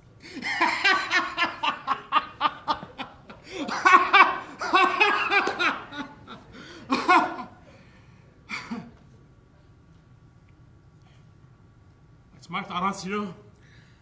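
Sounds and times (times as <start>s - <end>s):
man laughing: 0.4s - 7.5s.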